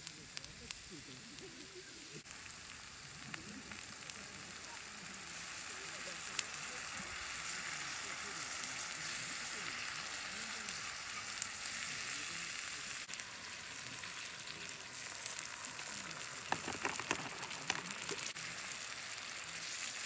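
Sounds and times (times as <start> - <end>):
vegetables sizzling in a pan: 0.0 - 20.0
liquid pouring into pan: 13.2 - 18.3.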